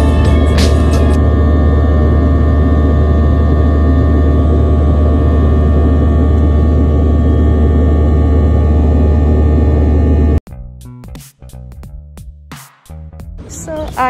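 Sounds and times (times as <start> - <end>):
plane engines droning: 0.0 - 10.4.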